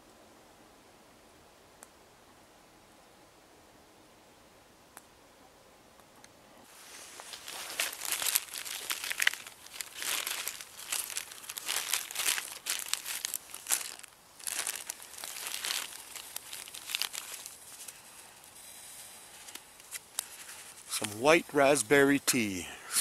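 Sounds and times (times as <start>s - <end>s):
plastic bag crinkling: 6.7s - 18.6s, 19.3s - 21.1s.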